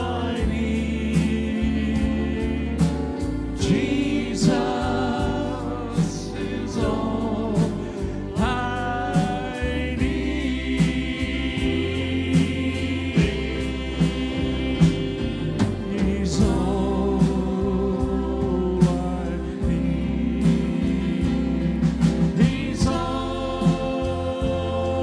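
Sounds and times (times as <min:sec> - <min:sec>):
acoustic guitar: 0:00.0 - 0:25.0
drum kit beat: 0:00.0 - 0:25.0
keyboard: 0:00.0 - 0:25.0
people singing: 0:00.0 - 0:25.0.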